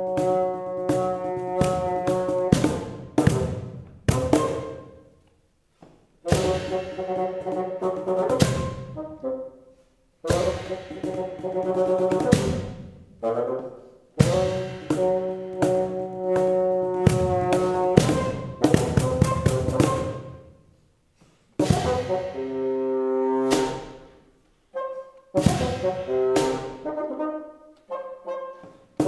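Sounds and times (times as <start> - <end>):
bassoon low notes: 0.0 - 5.2, 6.2 - 20.5, 21.6 - 29.0
cajon hand strokes: 10.3 - 13.0, 25.4 - 26.8.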